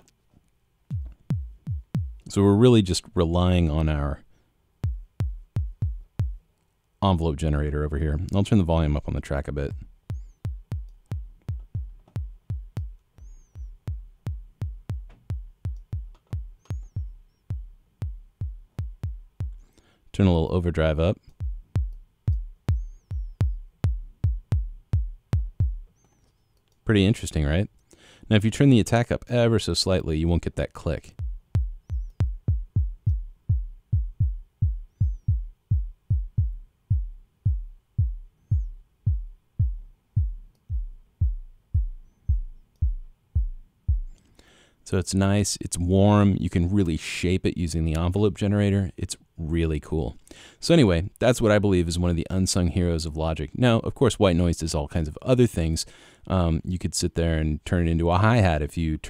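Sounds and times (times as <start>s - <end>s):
synthesized kick drum hits: 0.9s - 2.3s, 4.8s - 6.4s, 9.7s - 19.6s, 21.4s - 25.9s, 31.1s - 44.2s.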